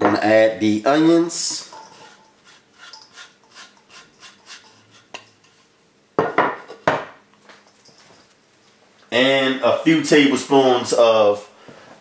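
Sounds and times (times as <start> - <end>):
onions scraped off cutting board: 1.9 - 5.6.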